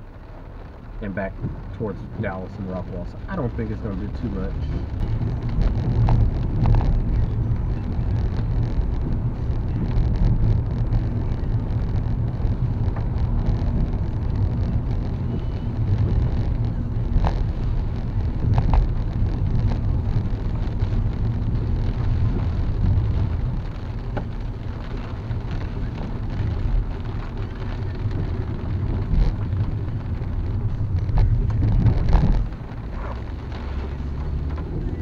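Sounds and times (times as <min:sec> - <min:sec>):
rain on a car: 0:00.0 - 0:35.0
road and tyre noise: 0:00.0 - 0:35.0.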